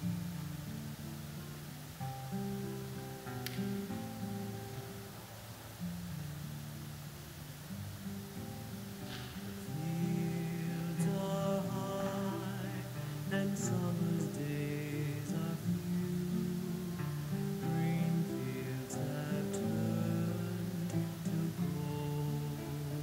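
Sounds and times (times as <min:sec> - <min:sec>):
hymn singing: 0:00.0 - 0:23.0.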